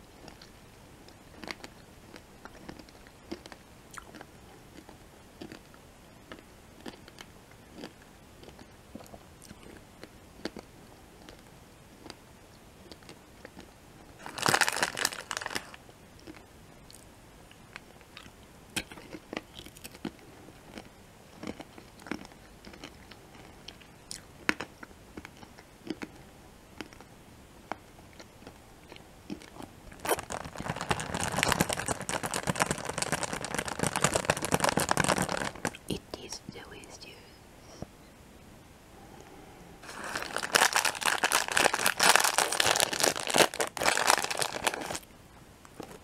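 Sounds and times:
mouth clicks while chewing: 0.2 - 12.2, 12.9 - 13.7, 16.2 - 26.2
candy crunching: 1.1 - 9.8, 12.9 - 17.0, 18.0 - 26.2, 28.1 - 36.9, 39.8 - 45.1
plastic bag crinkling: 14.2 - 16.4, 29.9 - 35.9, 39.8 - 45.1.

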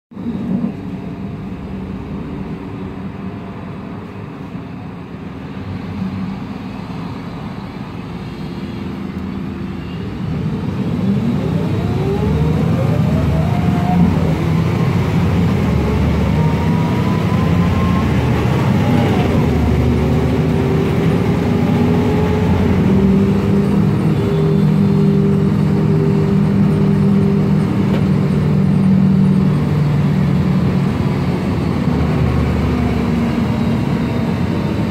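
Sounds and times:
bus engine running inside cabin: 0.1 - 34.9
gearbox whine rising: 10.4 - 34.9.

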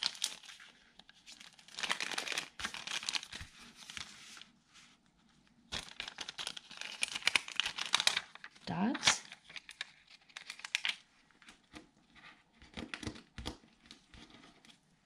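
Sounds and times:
plastic packet crinkling: 0.0 - 0.6, 1.4 - 3.5, 5.7 - 11.0.

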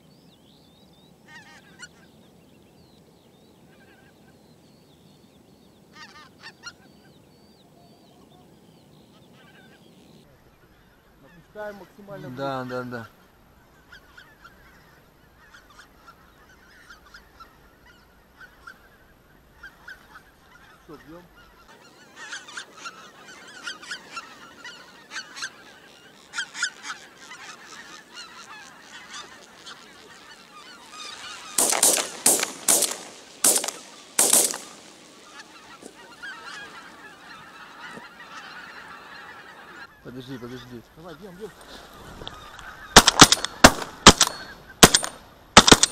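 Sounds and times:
geese honking in flight: 1.3 - 2.1, 5.9 - 7.1, 10.4 - 45.9.

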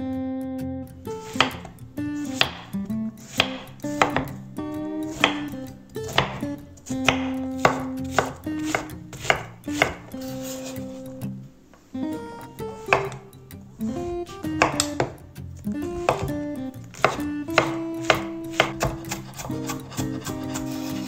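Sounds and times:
soft acoustic guitar music: 0.0 - 21.0
knife chopping on wooden board: 1.2 - 4.4, 5.0 - 10.7, 12.8 - 13.2, 14.0 - 21.0.

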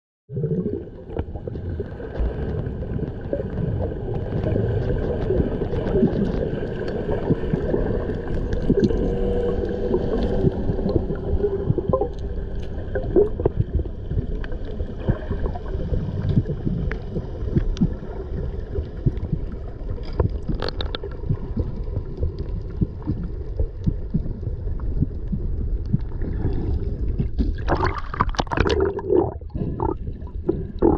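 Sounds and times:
low underwater rumble: 0.3 - 30.9
rushing gurgling water: 0.3 - 30.9
droning tones: 0.8 - 27.3
small crackling clicks: 2.2 - 11.2, 12.0 - 15.2, 18.8 - 24.2.

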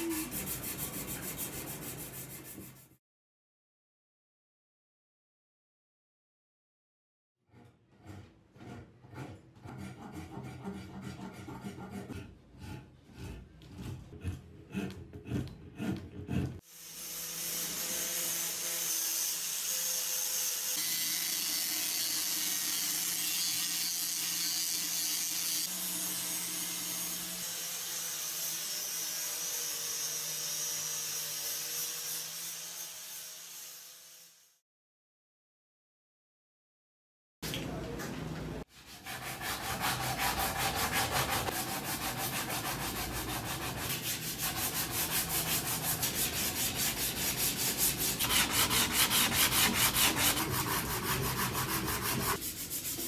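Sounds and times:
hand rasp filing wood: 0.0 - 3.0, 7.6 - 16.6, 38.8 - 53.0
power sander on wood: 44.5 - 52.4.

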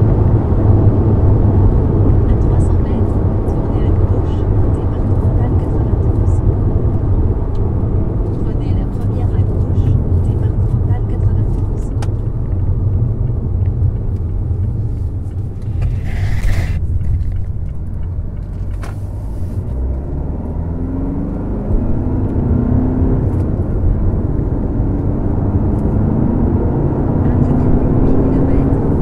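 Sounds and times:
car engine accelerating through gears: 0.0 - 29.0
brief hissing: 15.9 - 16.8.

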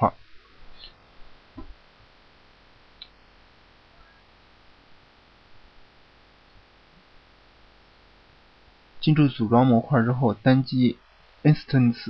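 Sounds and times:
low hiss and hum: 0.0 - 12.0.

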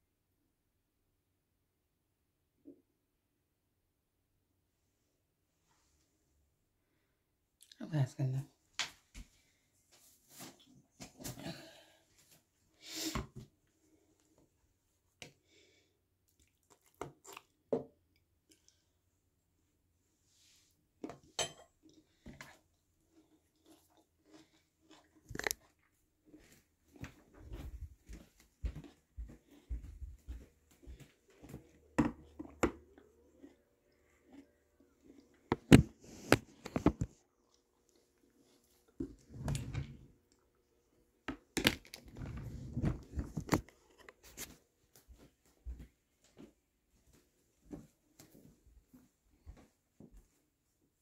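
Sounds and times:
crackling and rustling with crunches: 41.4 - 45.7.

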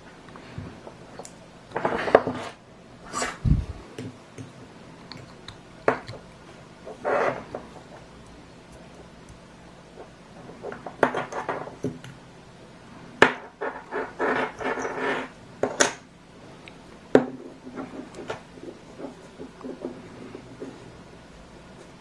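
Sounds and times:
rustling and scraping: 1.7 - 3.9, 6.0 - 8.1, 13.4 - 15.4, 17.3 - 21.1.

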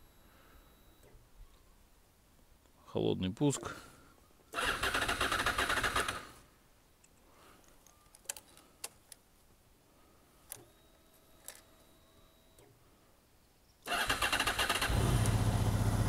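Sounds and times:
faint fuel pump hum: 0.0 - 1.7, 9.8 - 13.3
starter motor cranking: 4.6 - 6.3, 13.9 - 16.0.

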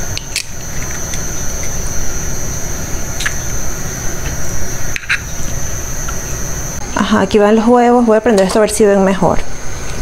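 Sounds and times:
gas burner hiss and rumble: 0.0 - 10.0.

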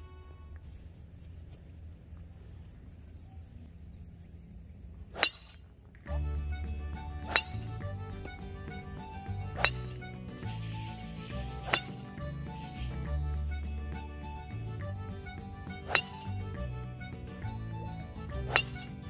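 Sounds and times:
golf club pinging ball: 5.2 - 10.2, 11.3 - 13.0, 14.8 - 16.7, 18.2 - 19.0
background music with bass line: 6.1 - 19.0.

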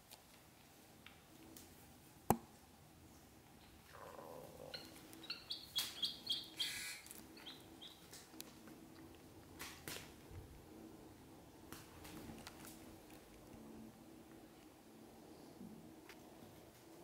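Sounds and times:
ducklings peeping: 4.0 - 8.1.

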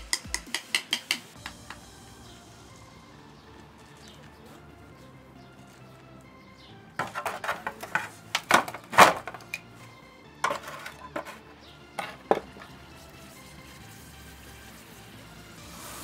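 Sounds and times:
metal clinking and knocking: 7.0 - 9.7, 10.4 - 12.7.

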